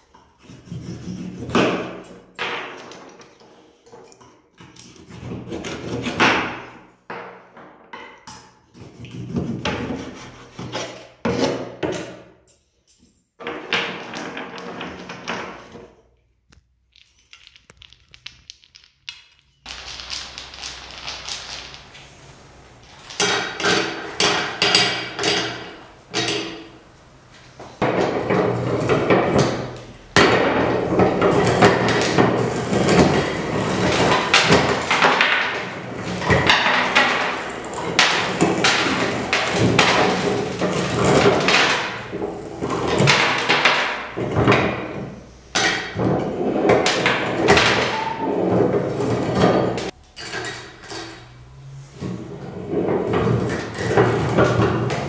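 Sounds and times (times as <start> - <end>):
candies crunching in meat grinder: 19.7 - 22.0.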